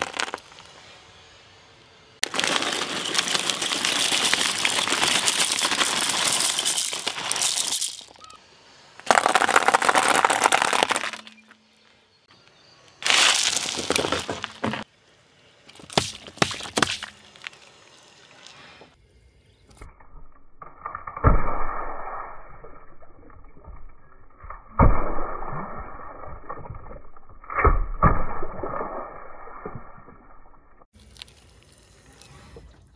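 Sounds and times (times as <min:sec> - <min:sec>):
tyre crushing candy: 0:00.0 - 0:00.7, 0:02.2 - 0:08.2, 0:09.0 - 0:11.4, 0:13.0 - 0:14.8
drink cartons bursting: 0:02.2 - 0:08.1, 0:09.0 - 0:11.3.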